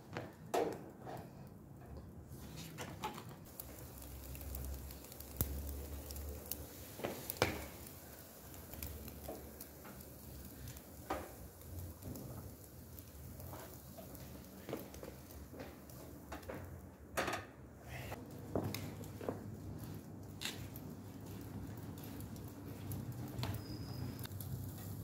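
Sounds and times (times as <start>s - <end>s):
coals popping and crackling: 0.0s - 25.0s
kebabs sizzling on a grill: 3.4s - 16.9s, 17.8s - 25.0s.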